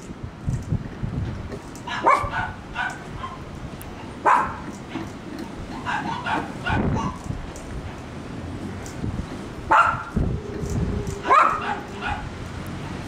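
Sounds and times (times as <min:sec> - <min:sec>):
dog barking: 0:01.9 - 0:03.4, 0:04.2 - 0:04.6, 0:05.8 - 0:07.2, 0:09.7 - 0:10.1, 0:11.2 - 0:12.3.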